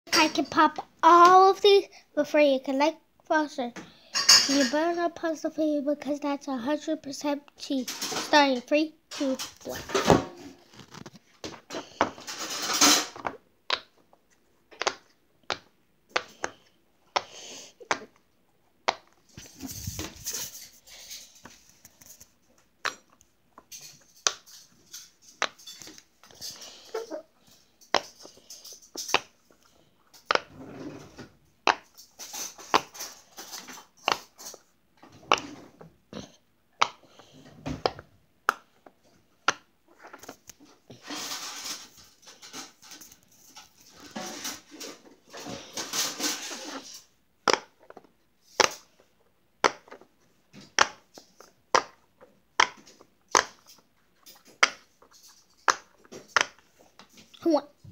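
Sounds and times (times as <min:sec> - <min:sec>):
rubbing and handling noise: 0:04.2 - 0:57.9
pop-it toy popping: 0:14.8 - 0:16.5, 0:47.4 - 0:47.8.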